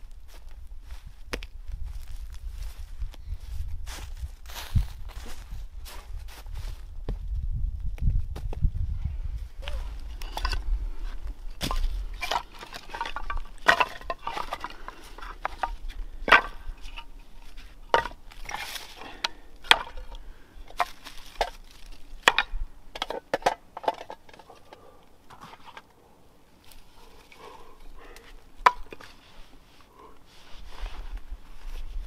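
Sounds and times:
kindling sticks clacking: 0:11.6 - 0:25.9, 0:26.7 - 0:29.2
rustling: 0:26.6 - 0:32.0.

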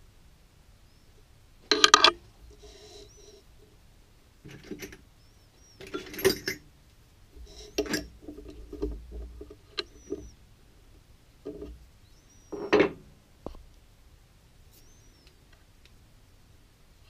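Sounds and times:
metal clicks and clunks of lathe: 0:01.7 - 0:02.2, 0:05.8 - 0:06.6, 0:07.7 - 0:10.2
faint high squeaks: 0:01.9 - 0:03.5, 0:07.4 - 0:08.8, 0:09.4 - 0:10.4, 0:14.7 - 0:15.3.

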